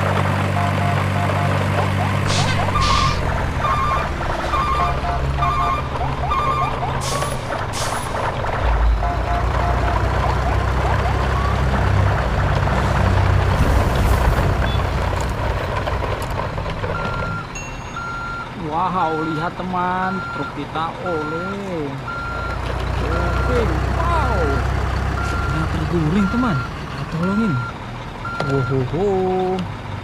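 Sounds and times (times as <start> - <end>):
diesel truck engine running: 0.0 - 30.0
beeping: 0.4 - 7.5, 8.8 - 12.2, 14.6 - 15.1, 16.8 - 28.9.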